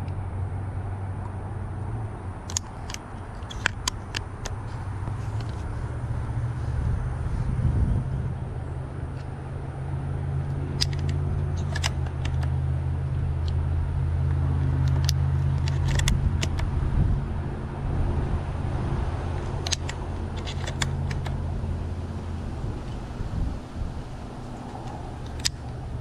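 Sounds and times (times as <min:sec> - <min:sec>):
steady low hum: 0:00.0 - 0:26.0
shells clicking into shotgun magazine: 0:02.4 - 0:04.6, 0:10.7 - 0:12.6, 0:14.8 - 0:16.7, 0:19.4 - 0:21.4, 0:24.8 - 0:25.8.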